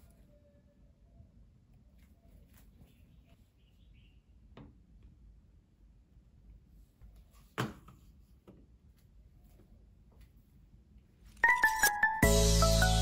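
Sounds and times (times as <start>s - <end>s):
lofi music with bass: 11.7s - 13.0s.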